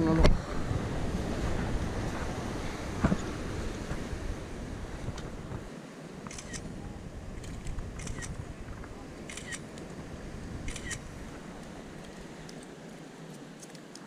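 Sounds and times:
phone camera shutter clicks: 9.3 - 9.6, 10.7 - 11.0.

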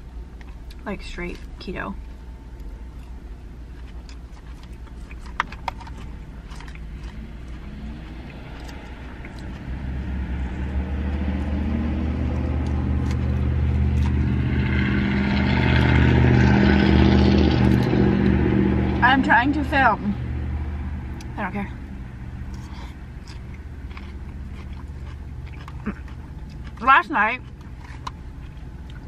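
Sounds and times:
vehicle engine droning hum: 0.0 - 29.0.

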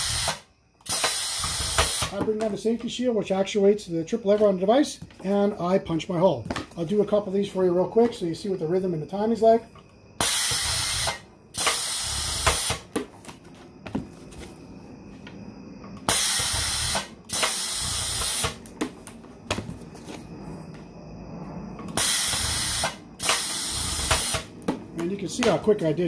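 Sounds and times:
press hissing blasts: 0.0 - 2.2, 10.2 - 12.8, 16.1 - 18.6, 22.0 - 24.5.

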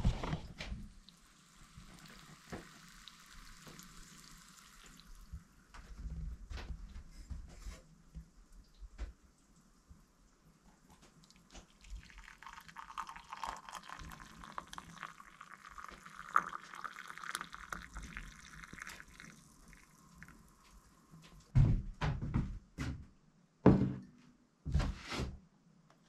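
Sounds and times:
coffee trickling into mug: 0.1 - 6.0, 10.8 - 21.4.

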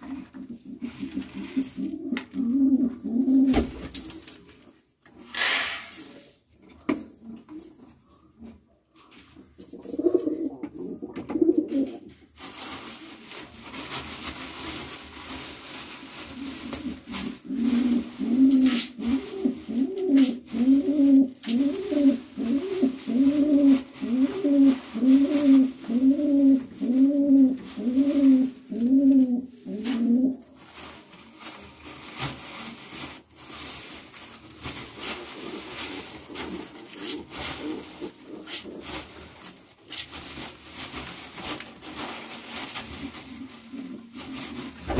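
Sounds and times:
pigeon cooing: 0.4 - 3.7, 9.6 - 12.0, 16.8 - 30.4.

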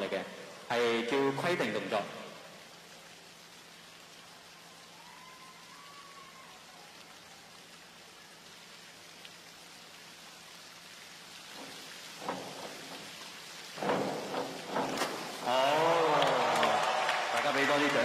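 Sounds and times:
hiss of water: 1.5 - 17.0
crowd voices and cheering: 4.5 - 7.5, 15.4 - 18.0.

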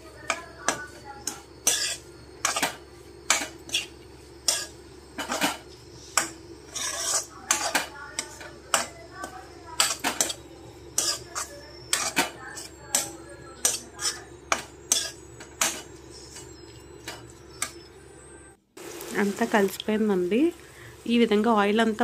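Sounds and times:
steel spatula scraping a pan: 0.6 - 9.0, 9.7 - 16.6.

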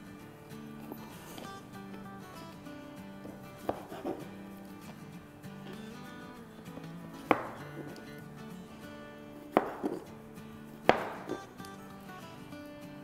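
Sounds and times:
soft background music: 0.0 - 13.0
knife chopping on cutting board: 3.2 - 4.3, 6.8 - 8.2, 9.3 - 11.6.

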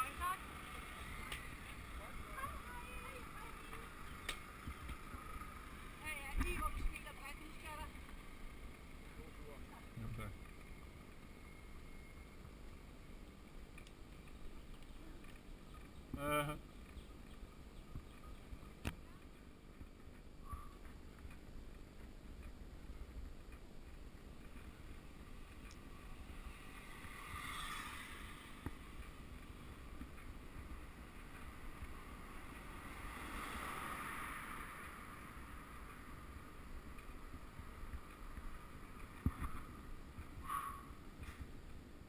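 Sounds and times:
bicycle tyre rumble on asphalt: 0.0 - 18.7, 19.6 - 42.0
wind noise: 32.9 - 41.7.

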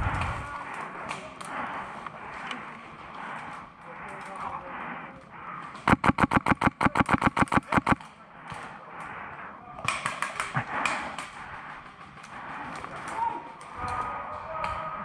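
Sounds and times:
airsoft gun full-auto burst: 5.9 - 8.0.

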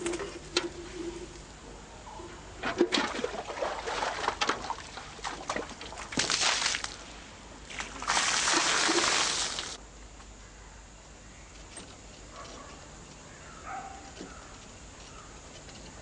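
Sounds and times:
water splashing and sloshing: 2.6 - 9.8
water pouring: 7.7 - 9.8.

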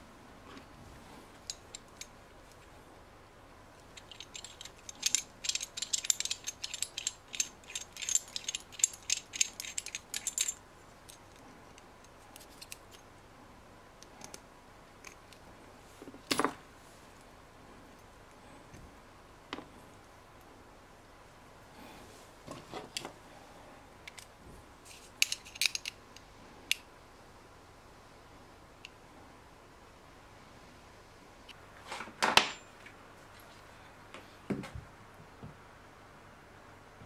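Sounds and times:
metal parts clicking and clinking: 1.4 - 2.6, 3.8 - 13.0, 25.1 - 26.0.

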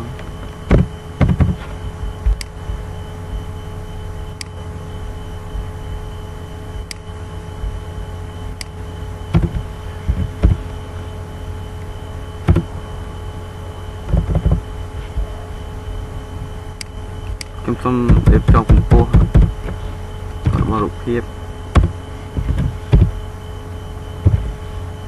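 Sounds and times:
electrical hum and hiss: 0.0 - 25.0
mouse thumps: 0.7 - 1.6, 9.3 - 10.6, 12.4 - 12.7, 14.1 - 14.6, 18.1 - 19.8, 21.7 - 23.2, 24.2 - 24.6.

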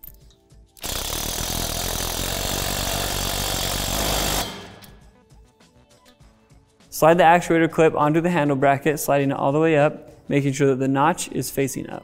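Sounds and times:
impact driver driving a bolt: 0.8 - 5.0.

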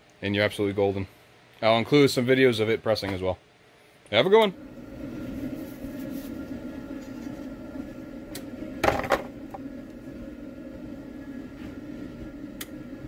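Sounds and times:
low machine hum: 4.2 - 13.0.

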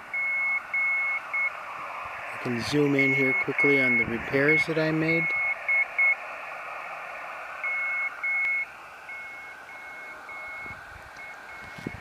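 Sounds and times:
radio speaker hissing: 0.0 - 12.0
morse code beeps: 0.1 - 1.6, 3.0 - 6.2, 7.6 - 12.0.

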